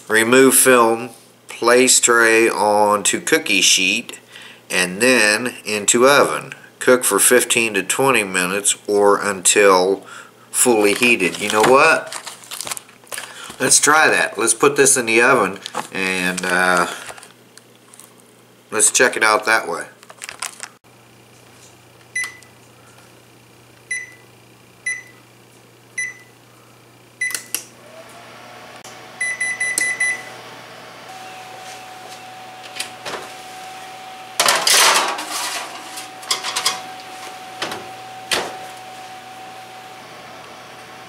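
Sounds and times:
oven hum: 20.9s - 41.0s
control panel beeps: 22.2s - 22.5s, 23.9s - 24.2s, 24.9s - 25.1s, 26.0s - 26.3s, 29.2s - 30.3s.

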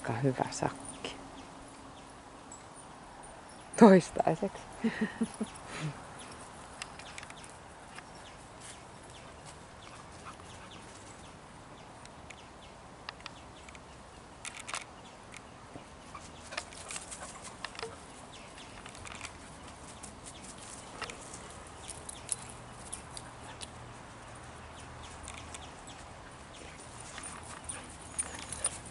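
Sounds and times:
scattered clicks and ticks: 13.0s - 13.8s.

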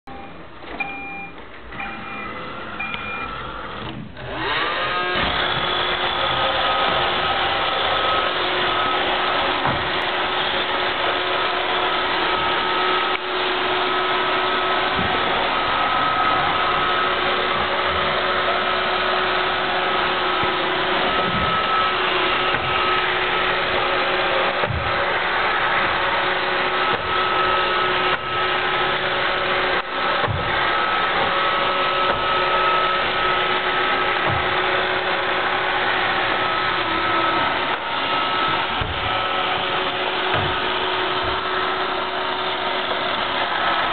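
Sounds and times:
robot vacuum beeps: 0.1s - 3.7s
robot vacuum motor humming: 1.8s - 43.9s.

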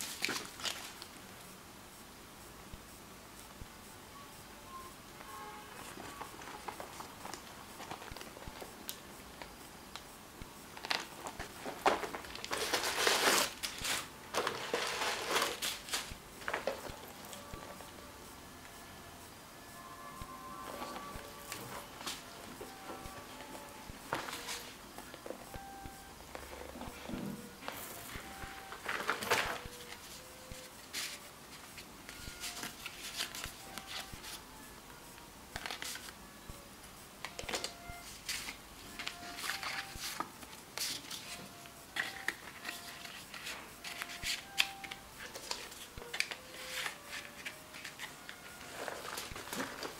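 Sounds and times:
paper tags rustling: 5.8s - 9.5s, 10.8s - 17.9s, 26.3s - 34.4s, 37.3s - 49.9s.

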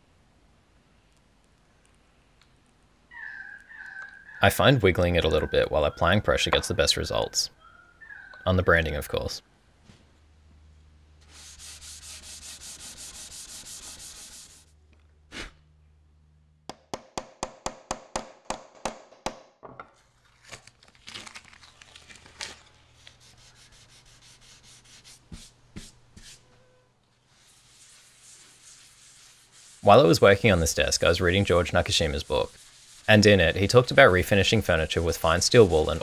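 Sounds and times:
rubbing against wood: 11.2s - 14.7s, 27.3s - 36.0s
low hum: 14.7s - 16.7s.

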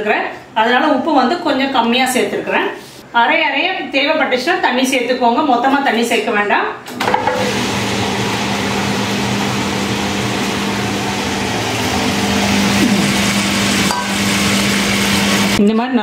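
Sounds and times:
wet grinder motor humming: 7.0s - 15.6s.

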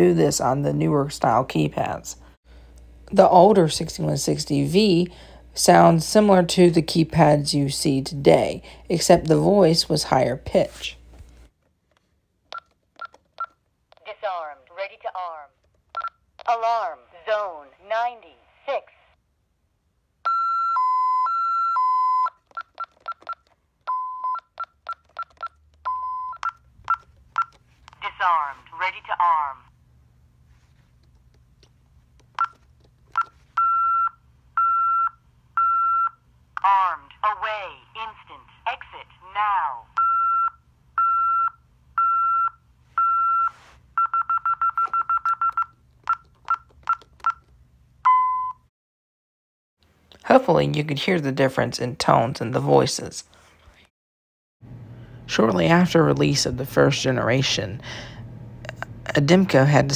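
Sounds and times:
keypad beeps: 12.5s - 13.6s, 16.0s - 16.2s, 20.3s - 27.6s, 32.4s - 36.2s, 40.0s - 47.5s
alarm keypad warning beeps: 23.9s - 24.6s, 25.3s - 27.5s, 40.0s - 45.7s.

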